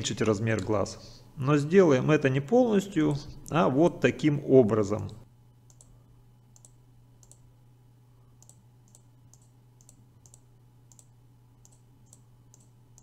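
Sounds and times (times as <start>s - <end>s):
low steady hum: 0.0s - 13.0s
computer mouse clicks: 5.1s - 6.0s, 6.6s - 7.4s, 8.4s - 13.0s.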